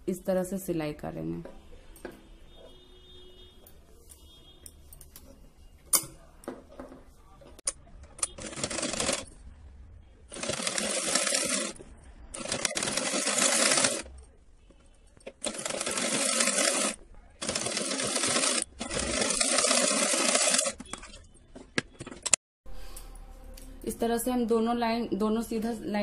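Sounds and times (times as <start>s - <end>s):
sewing machine stitching: 8.2s - 9.4s, 10.3s - 11.8s, 12.4s - 14.1s, 15.4s - 21.3s.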